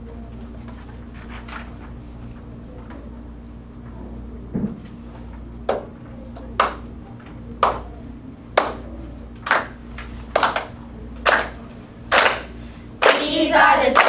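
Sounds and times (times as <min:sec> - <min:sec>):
hands beating rhythm: 0:11.3 - 0:14.0.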